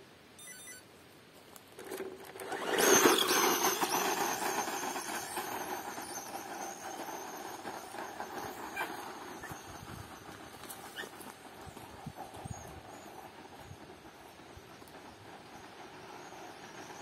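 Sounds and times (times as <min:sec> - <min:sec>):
tyres spinning on dirt: 0:01.4 - 0:17.0
electric motor whining: 0:01.9 - 0:08.0.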